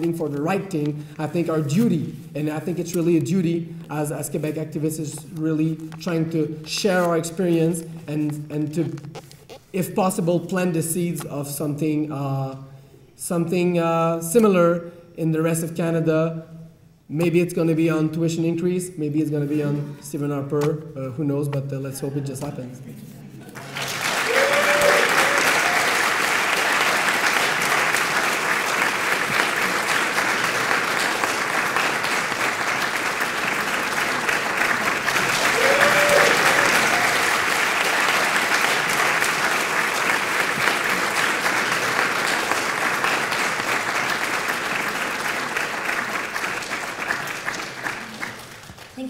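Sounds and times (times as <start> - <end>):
audience applauding: 23.5 - 49.0.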